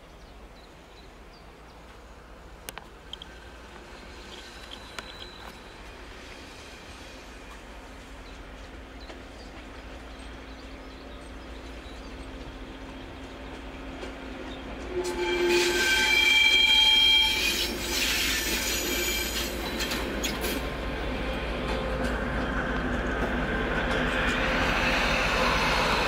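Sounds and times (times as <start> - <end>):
rolling rail noise: 0.0 - 26.0
rail wheels squealing: 3.1 - 13.0, 13.9 - 26.0.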